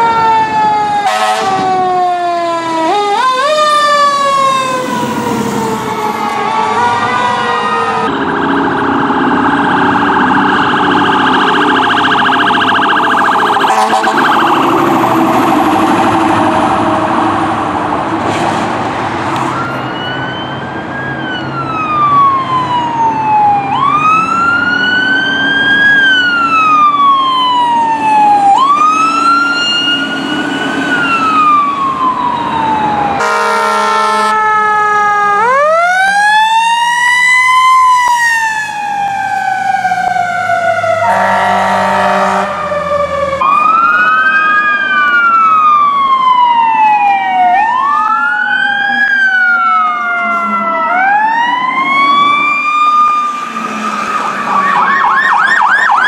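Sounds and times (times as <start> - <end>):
siren wailing: 0.0 - 18.2, 19.3 - 56.0
fire truck horn blasts: 1.0 - 1.9, 13.5 - 14.5, 33.2 - 34.9, 41.0 - 42.7
siren winding up: 4.6 - 17.6.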